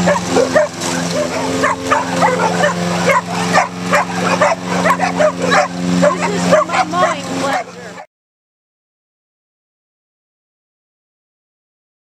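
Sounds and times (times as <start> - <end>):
dogs barking and yipping: 0.0 - 8.1
lawn mower engine droning: 0.0 - 8.1.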